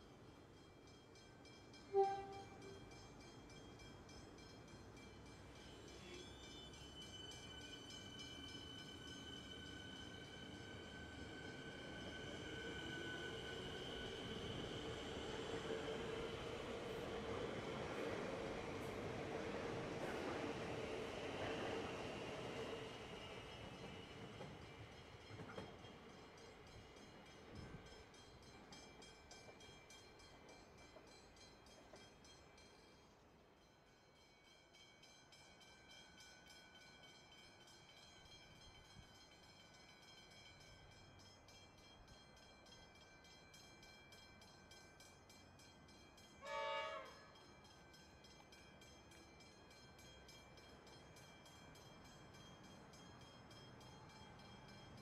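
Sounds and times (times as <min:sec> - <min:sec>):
train horn blast: 0:01.9 - 0:02.8, 0:46.4 - 0:47.3.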